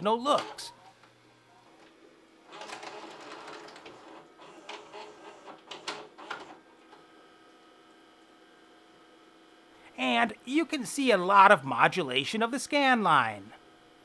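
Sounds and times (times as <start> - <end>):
vcr loading mechanism whirring: 0.0 - 9.7
faint steady hum: 0.0 - 14.0.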